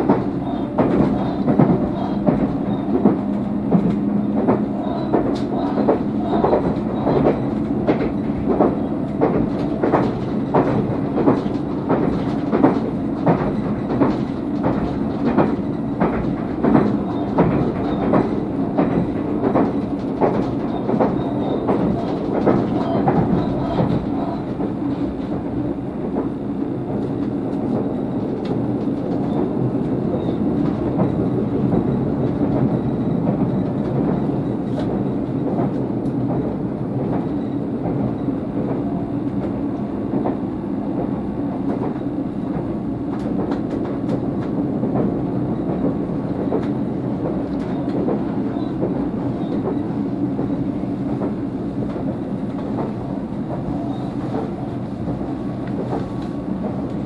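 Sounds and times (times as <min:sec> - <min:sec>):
wheels clacking over rail joints: 0:00.0 - 0:26.4
electric train running hum: 0:00.0 - 0:57.0.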